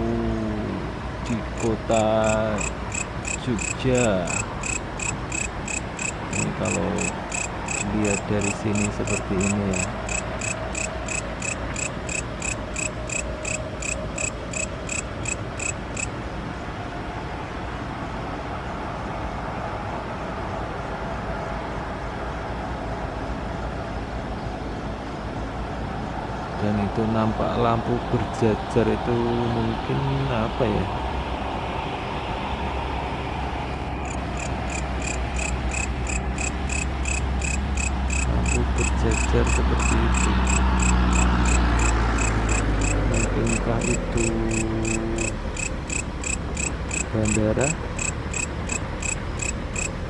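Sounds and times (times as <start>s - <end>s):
low background noise: 0.0s - 50.0s
insect chirping: 1.3s - 16.1s, 34.0s - 50.0s.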